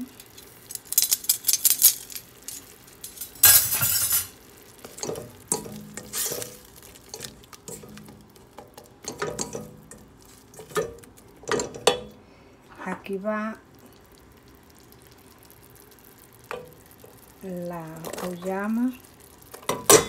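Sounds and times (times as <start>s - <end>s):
light sizzle: 0.0s - 20.0s
spatula scraping pot: 3.6s - 8.2s.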